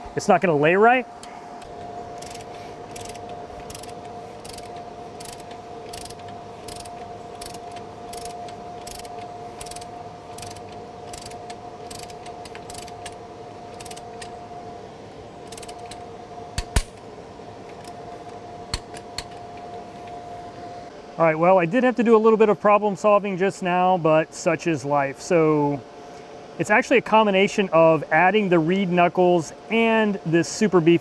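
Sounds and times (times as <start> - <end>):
hand ratchet clicking: 1.2 - 14.3, 15.5 - 16.0, 16.6 - 17.0, 18.7 - 19.5.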